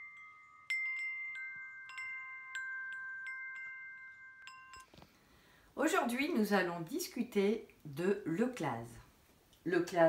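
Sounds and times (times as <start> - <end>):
metallic chimes ringing: 0.0 - 5.0.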